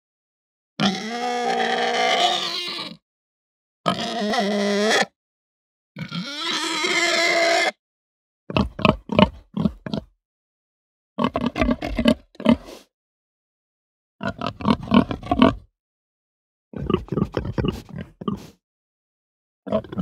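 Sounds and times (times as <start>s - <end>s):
pig grunting: 0.8s - 3.0s, 3.9s - 5.1s, 8.5s - 10.1s, 11.2s - 12.9s, 14.2s - 15.7s, 16.8s - 18.6s, 19.7s - 20.0s
pig squealing: 0.8s - 3.0s, 3.8s - 5.2s, 6.0s - 7.8s, 14.2s - 15.6s, 19.7s - 20.0s.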